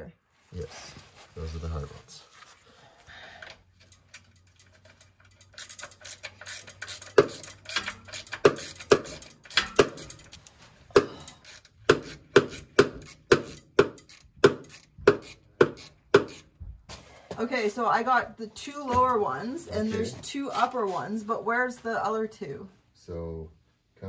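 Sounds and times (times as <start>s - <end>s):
socket wrench ratchet clicking: 3.9s - 10.5s, 11.3s - 16.4s.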